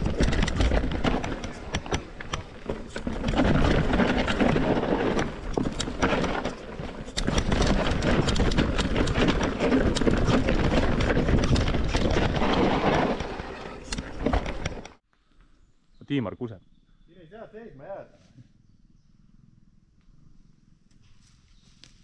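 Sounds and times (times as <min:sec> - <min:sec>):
mountain bike rattling over rocks: 0:00.0 - 0:15.0.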